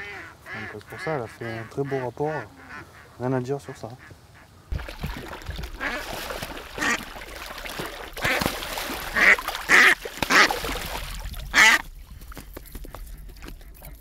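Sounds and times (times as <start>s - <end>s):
duck quacking loudly: 0.0s - 4.5s, 6.8s - 7.1s, 8.2s - 10.6s, 11.5s - 11.8s
water splashing: 4.7s - 14.0s.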